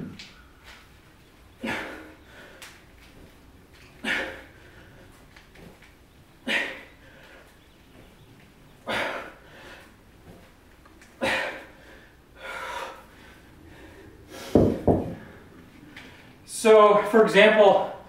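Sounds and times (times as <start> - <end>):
kettlebell thudding on floor: 14.5 - 15.3.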